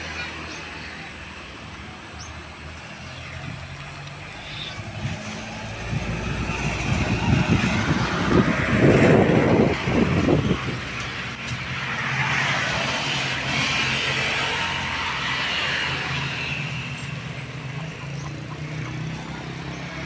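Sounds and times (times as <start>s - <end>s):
motor vehicle passing by: 2.2s - 20.0s.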